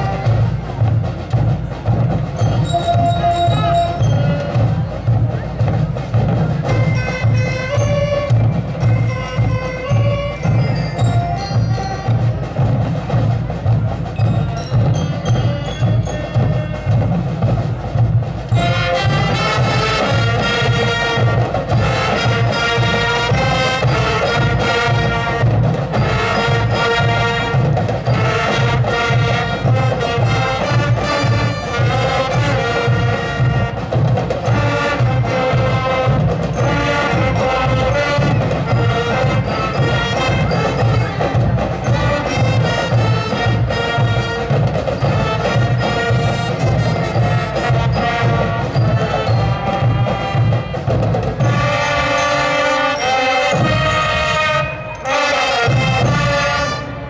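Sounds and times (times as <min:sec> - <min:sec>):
drums steady beat: 0:00.0 - 0:57.0
marching band playing: 0:00.0 - 0:57.0
high ringing notes: 0:02.4 - 0:05.0, 0:06.8 - 0:12.6, 0:14.2 - 0:17.4, 0:44.9 - 0:56.9.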